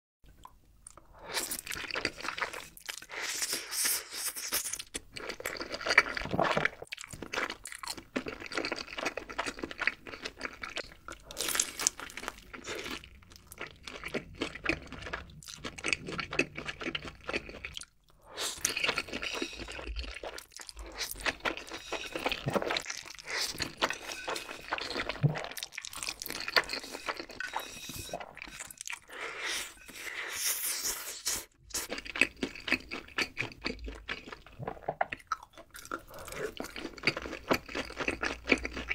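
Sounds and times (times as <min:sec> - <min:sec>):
crunching and chewing: 0:04.4 - 0:29.1, 0:31.7 - 0:38.9
slurping noodles: 0:17.3 - 0:32.0.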